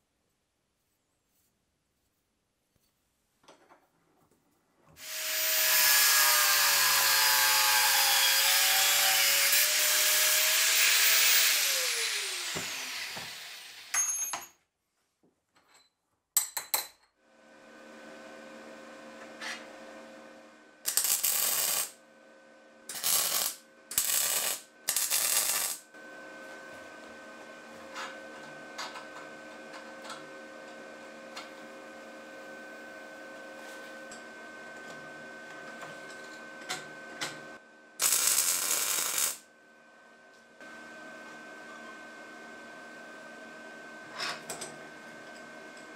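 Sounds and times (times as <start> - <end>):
power tool motor winding down: 5.0 - 13.9
arc welding crackle: 20.8 - 22.0, 22.9 - 25.9, 38.0 - 39.5.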